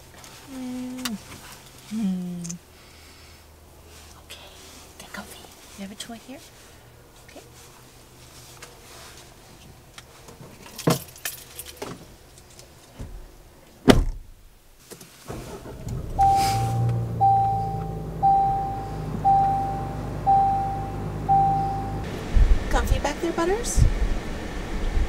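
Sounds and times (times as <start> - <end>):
car door shutting: 13.8 - 14.3, 15.3 - 22.5
car engine running: 15.3 - 25.0
warning chime dinging: 16.2 - 22.1.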